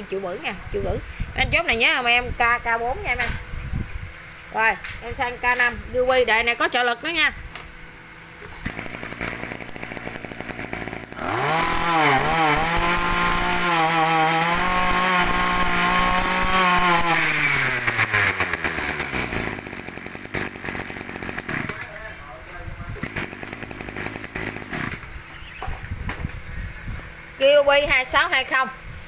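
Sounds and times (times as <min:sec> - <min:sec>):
brush cutter engine revving: 0:08.4 - 0:22.0, 0:22.9 - 0:25.2.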